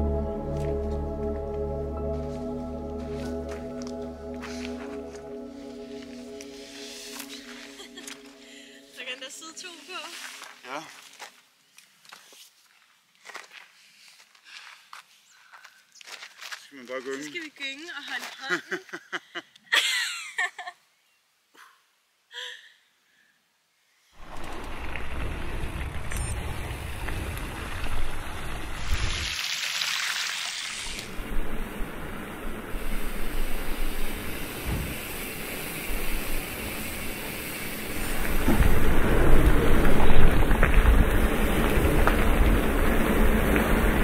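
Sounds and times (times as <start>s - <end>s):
bicycle tyres hissing through puddles: 4.4s - 11.2s, 24.1s - 44.0s
low rumble of tyres and wind: 24.2s - 29.3s, 31.0s - 44.0s.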